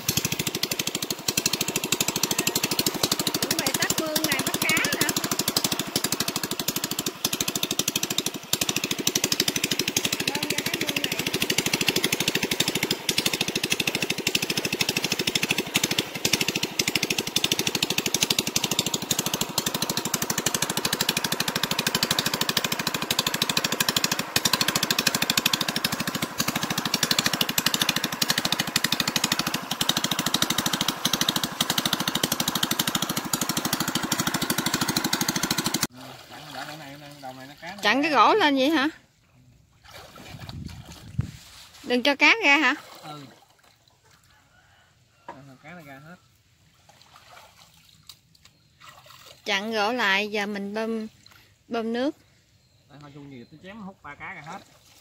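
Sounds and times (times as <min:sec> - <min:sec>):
small gasoline engine chattering: 0:00.0 - 0:39.0, 0:40.3 - 0:43.3.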